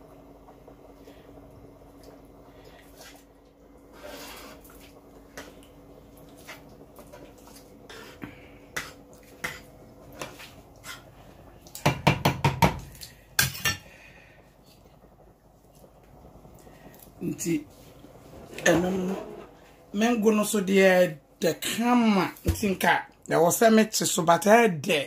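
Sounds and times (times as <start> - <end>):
ladle stirring porridge: 1.9 - 13.9.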